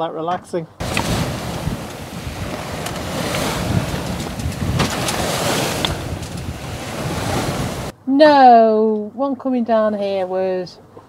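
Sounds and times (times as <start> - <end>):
bow wave rushing along hull: 0.8 - 7.9
wind buffeting microphone: 0.8 - 8.0.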